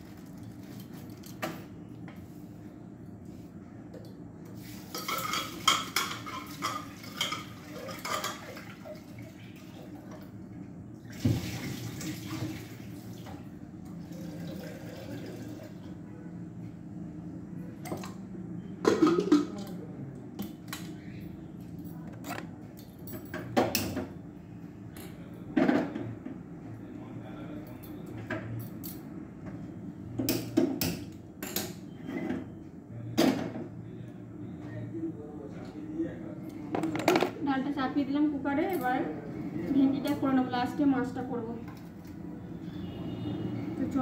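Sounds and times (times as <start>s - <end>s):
tap water running into pot: 14.1s - 15.7s.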